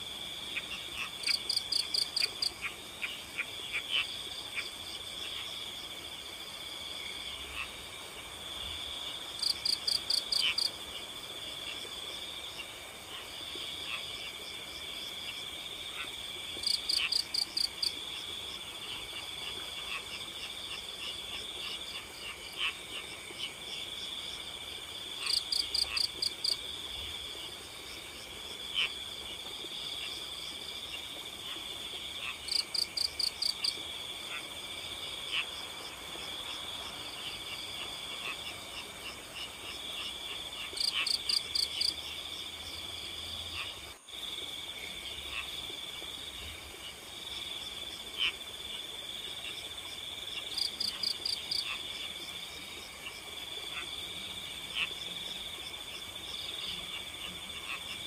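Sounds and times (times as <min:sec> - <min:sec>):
crickets trilling: 0:00.3 - 0:02.6, 0:28.6 - 0:48.7.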